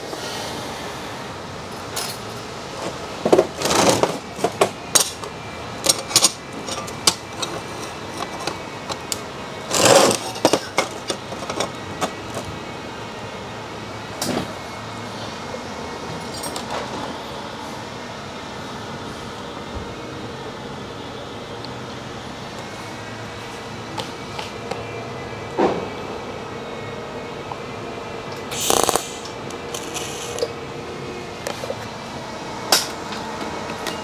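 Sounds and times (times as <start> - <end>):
workshop hum: 0.0 - 34.0
metal parts clicking and clinking: 3.6 - 12.5
welding arc bursts: 28.5 - 30.4.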